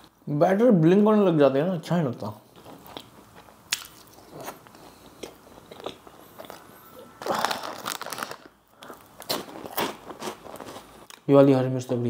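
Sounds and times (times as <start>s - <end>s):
biting and chewing food: 2.6s - 11.3s
plastic packet rustling: 7.2s - 11.0s.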